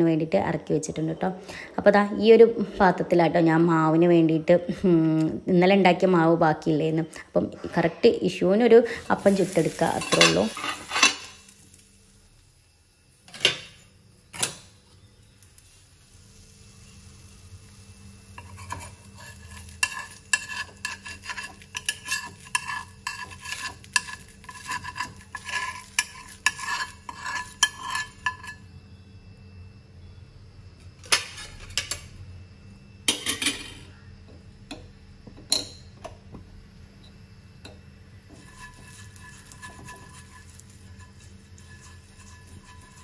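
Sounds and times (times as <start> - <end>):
utensils clattering: 9.3 - 11.4, 33.1 - 33.9
spoon clinking in a bowl: 19.8 - 28.7.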